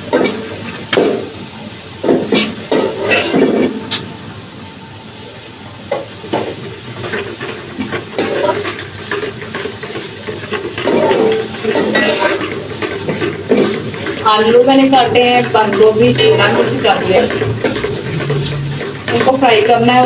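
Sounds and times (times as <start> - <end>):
food sizzling: 0.0 - 20.0
metal spoon scraping steel pot: 10.8 - 13.3.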